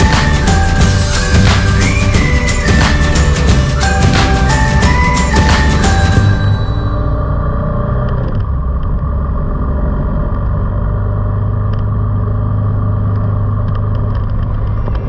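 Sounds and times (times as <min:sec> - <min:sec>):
vehicle engine and road noise: 0:02.8 - 0:15.0.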